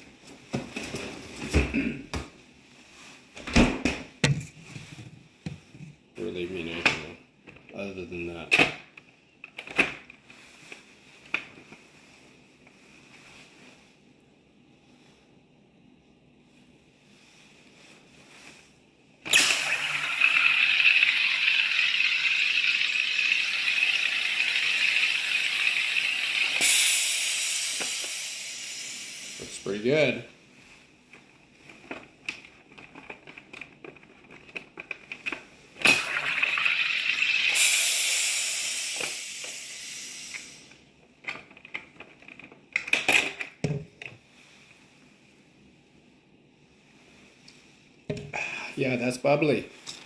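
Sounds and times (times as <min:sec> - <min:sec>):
carbonator whistling hiss: 0:19.3 - 0:29.6, 0:36.1 - 0:40.7.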